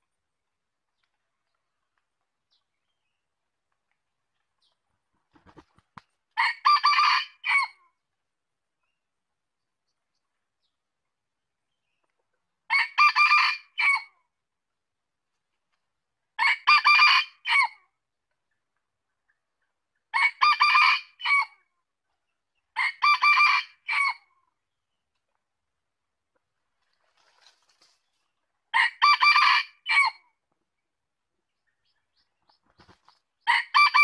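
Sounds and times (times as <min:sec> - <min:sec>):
rooster crowing: 0:33.5 - 0:34.0.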